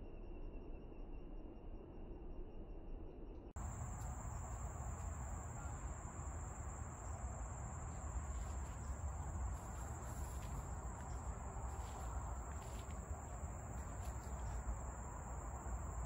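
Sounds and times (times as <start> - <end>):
low rumble: 3.5 - 16.0
insects droning: 3.6 - 16.0.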